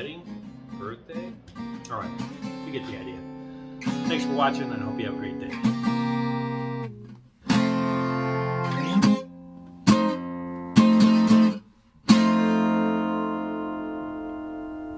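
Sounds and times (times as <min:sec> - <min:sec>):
guitar-like chords ringing: 0:00.0 - 0:14.9.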